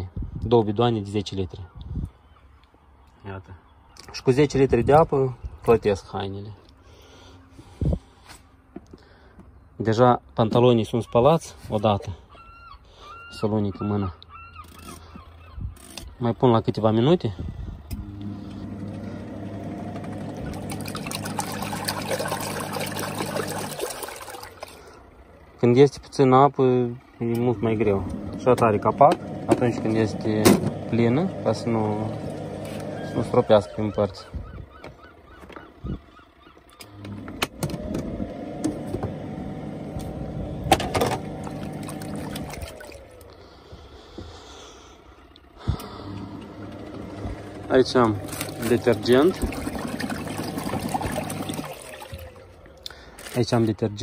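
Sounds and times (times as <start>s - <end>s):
washing machine motor humming: 16.9s - 36.1s, 36.8s - 43.8s, 45.2s - 53.7s
water churning and sloshing: 17.8s - 36.0s, 36.7s - 54.0s.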